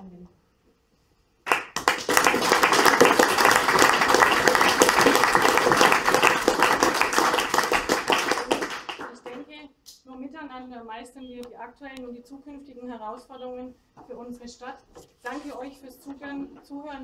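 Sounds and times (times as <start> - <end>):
audience applauding: 1.4 - 9.4.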